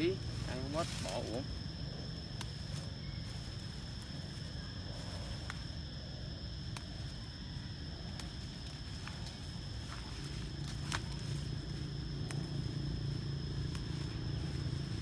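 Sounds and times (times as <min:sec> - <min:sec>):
rustling foliage: 0:00.0 - 0:15.0
steady low rumble: 0:00.0 - 0:15.0
leaf stalks snapping: 0:02.2 - 0:02.9, 0:06.5 - 0:15.0.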